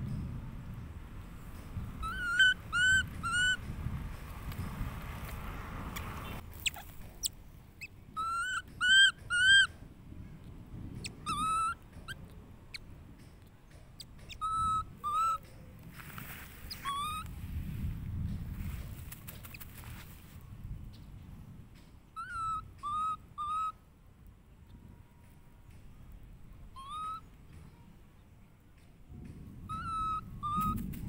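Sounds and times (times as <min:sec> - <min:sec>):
baby monkey squeaking: 0:02.0 - 0:03.7, 0:06.5 - 0:09.8, 0:11.0 - 0:12.8, 0:14.0 - 0:15.5, 0:16.6 - 0:17.3, 0:22.2 - 0:23.7, 0:26.7 - 0:27.3, 0:29.7 - 0:31.0.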